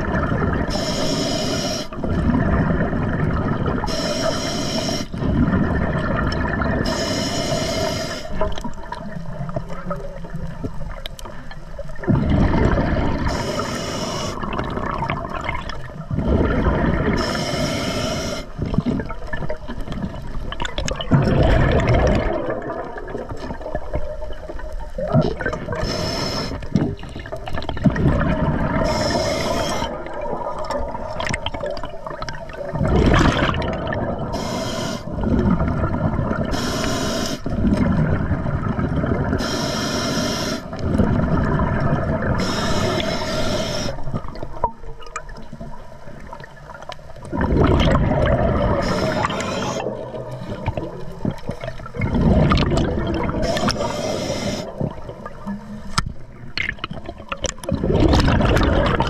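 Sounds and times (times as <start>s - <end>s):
scuba regulator hissing inhalations: 0.7s - 2.0s, 3.8s - 5.2s, 6.8s - 8.5s, 13.2s - 14.6s, 17.1s - 18.7s, 25.7s - 26.8s, 28.7s - 30.0s, 34.2s - 35.2s, 36.4s - 37.5s, 39.3s - 40.8s, 42.2s - 44.2s, 48.7s - 50.1s, 53.3s - 55.0s
bubbling exhalations: 1.9s - 4.2s, 5.0s - 9.2s, 12.0s - 39.6s, 40.6s - 45.4s, 47.2s - 55.7s, 56.4s - 59.0s.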